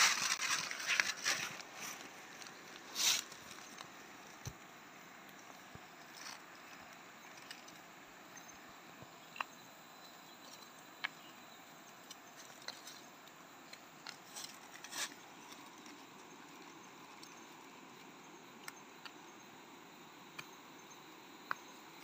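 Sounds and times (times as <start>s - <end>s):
rustling in leaf litter: 0.0s - 4.0s, 14.2s - 15.2s
steady faint hiss: 0.0s - 22.0s.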